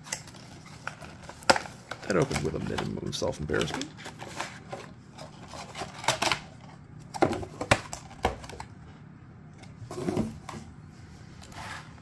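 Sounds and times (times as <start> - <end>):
packaging rustling: 0.0 - 8.7.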